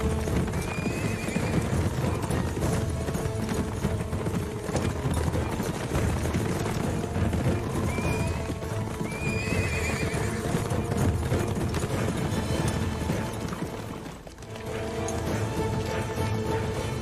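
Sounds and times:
horse whinnying: 0.0s - 13.4s
background music: 0.0s - 17.0s
horses galloping hoofbeats: 0.0s - 17.0s.

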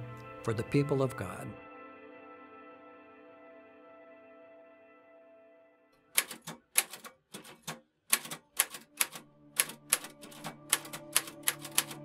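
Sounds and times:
manual typewriter typing: 6.2s - 12.0s.

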